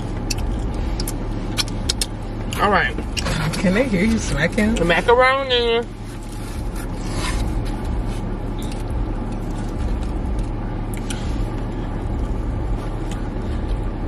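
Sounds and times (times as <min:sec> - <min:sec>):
person chewing food: 0:00.0 - 0:02.2, 0:06.1 - 0:14.0
car engine hum inside cabin: 0:00.0 - 0:14.0.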